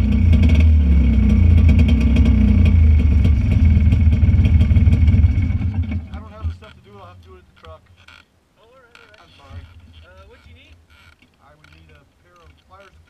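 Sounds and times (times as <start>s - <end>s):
buggy engine idling: 0.0s - 6.7s.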